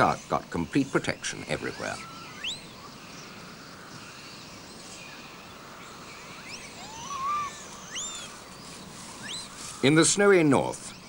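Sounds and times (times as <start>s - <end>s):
high chirping animal calls: 0.0s - 11.0s
steady hiss: 2.8s - 11.0s
low wavering animal call: 6.3s - 9.8s.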